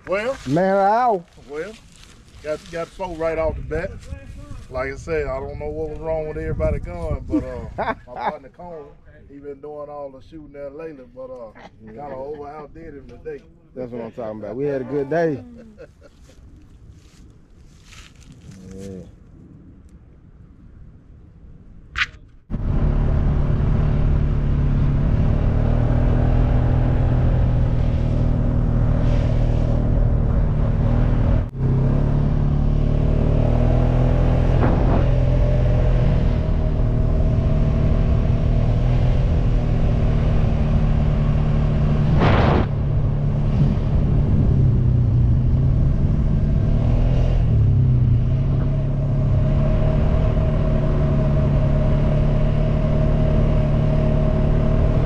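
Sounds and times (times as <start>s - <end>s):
quad bike engine cruising: 22.6s - 55.0s.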